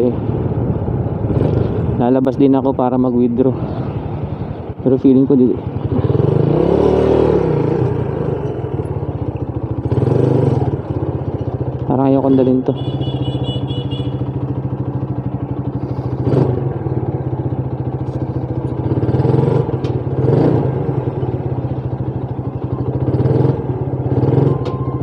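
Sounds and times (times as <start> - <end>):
motorcycle engine idling: 7.2 - 25.0.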